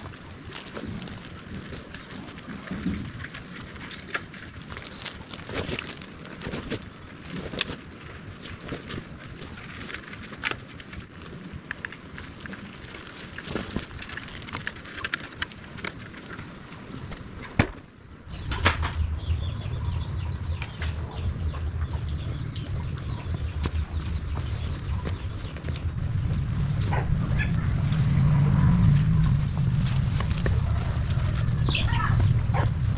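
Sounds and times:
insects droning: 0.0 - 32.9
low pulsing rumble: 18.2 - 32.9
boots stepping: 23.2 - 27.0, 29.5 - 32.8.

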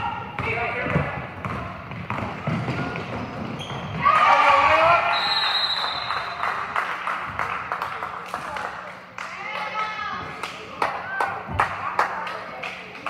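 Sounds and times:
basketball dribbling on gym floor: 0.3 - 4.0.

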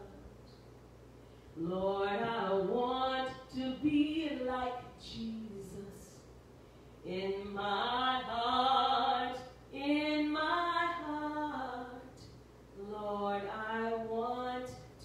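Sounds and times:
woman singing unaccompanied: 0.0 - 0.3, 1.6 - 6.3, 7.0 - 15.0.

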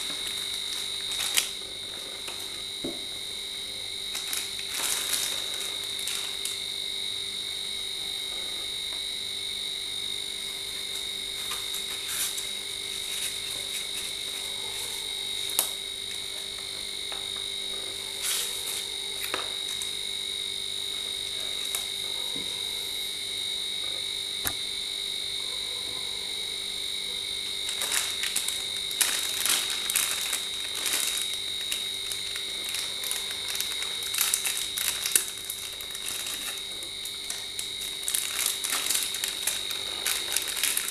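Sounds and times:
plastic wrapping crinkling: 0.0 - 3.0, 4.0 - 6.7, 10.8 - 20.0, 27.6 - 40.9.

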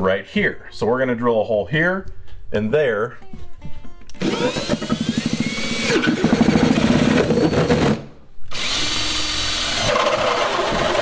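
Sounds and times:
cordless drill boring through plastic: 4.2 - 11.0.

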